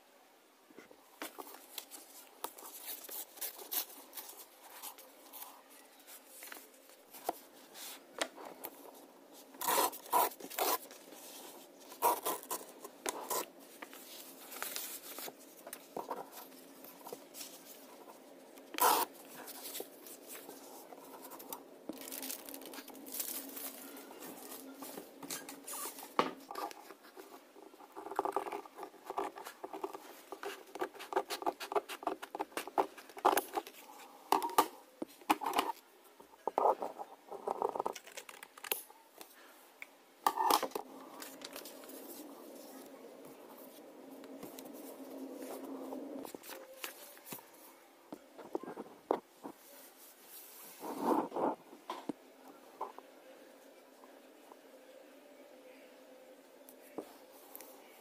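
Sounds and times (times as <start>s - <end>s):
paper rustling and sliding: 9.6s - 18.1s.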